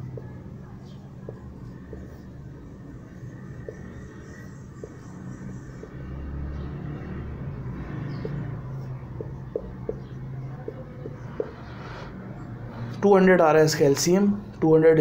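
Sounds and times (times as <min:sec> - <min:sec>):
marker ticking on whiteboard: 0:00.0 - 0:06.8, 0:08.1 - 0:11.6.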